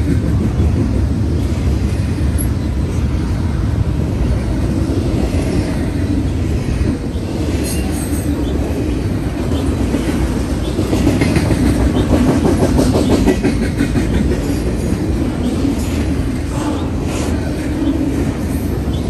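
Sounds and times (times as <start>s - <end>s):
clickety-clack over rail joints: 0.0s - 19.0s
freight train wheels rumbling: 0.0s - 19.0s.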